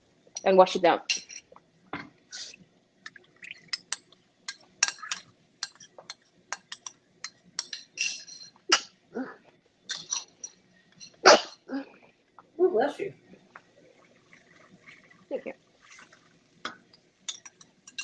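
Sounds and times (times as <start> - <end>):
spoon scraping a plate: 4.8 - 8.6, 9.9 - 11.2.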